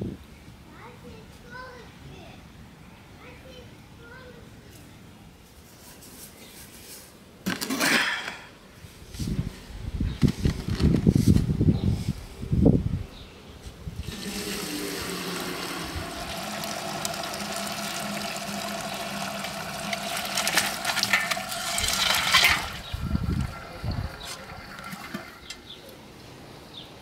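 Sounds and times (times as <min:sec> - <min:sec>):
broth pouring into colander: 0:14.0 - 0:25.5
bones slapping into colander: 0:18.8 - 0:22.8.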